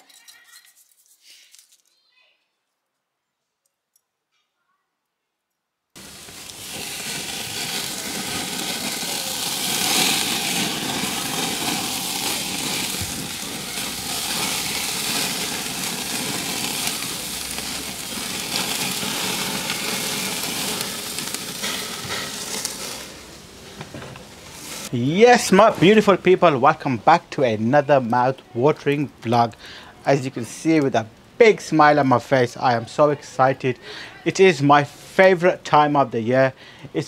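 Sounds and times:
chicken sizzling on a grill: 6.0 - 27.2, 27.8 - 36.1.

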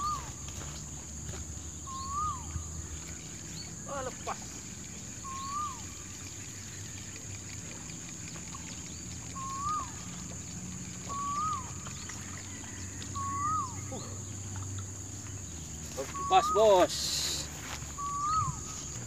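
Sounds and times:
bird whistling short note: 1.9 - 2.5, 5.2 - 5.8, 11.1 - 11.7, 13.2 - 14.0, 17.9 - 18.9.

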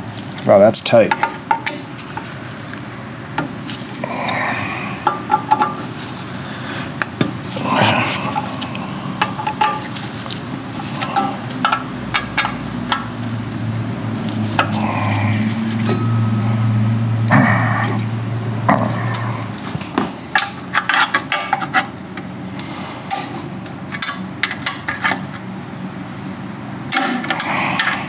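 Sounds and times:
low steady hum: 0.0 - 28.0
metal tools and parts clinking: 9.2 - 16.8.

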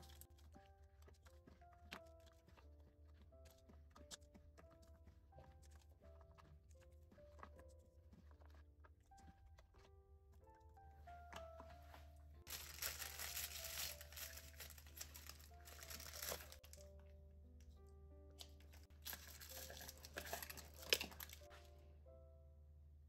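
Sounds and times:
soft background music: 0.0 - 23.0
plastic bag crinkling: 12.5 - 16.9, 18.4 - 21.6.

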